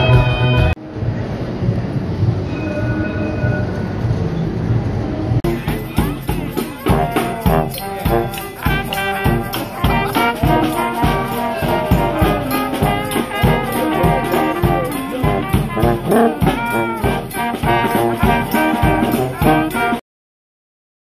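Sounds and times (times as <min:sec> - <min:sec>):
brass band playing: 0:00.0 - 0:00.8, 0:05.4 - 0:20.0
bass drum and snare beat: 0:05.4 - 0:20.0.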